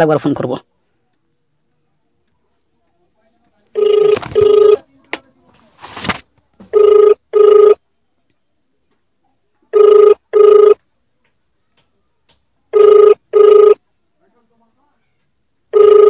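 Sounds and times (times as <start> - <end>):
telephone ringback tone: 3.8 - 4.8, 6.7 - 7.8, 9.7 - 10.8, 12.7 - 13.8, 15.7 - 16.0.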